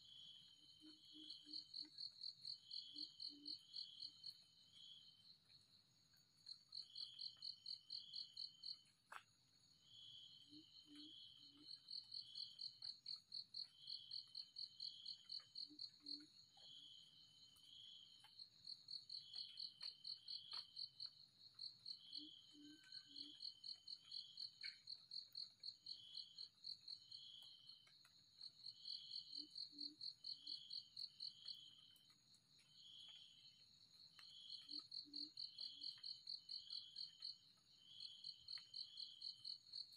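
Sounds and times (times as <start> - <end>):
insect chirps: 0.0 - 39.9
insect high-pitched trill: 10.0 - 27.8.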